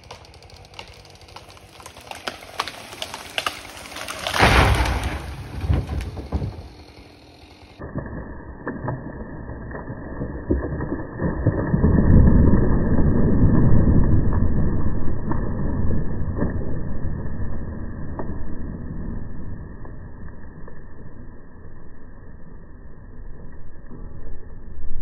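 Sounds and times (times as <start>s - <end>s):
tree cracking and snapping: 0.0s - 7.8s
tree crashing through branches: 0.0s - 7.8s.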